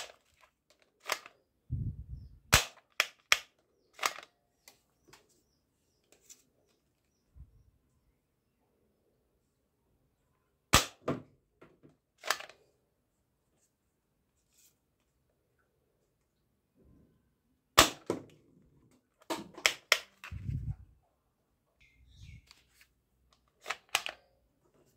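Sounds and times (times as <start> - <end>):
plastic toy rifle clicking: 0.0 - 1.4, 2.6 - 4.3, 12.2 - 12.6, 19.2 - 20.3, 23.4 - 24.3.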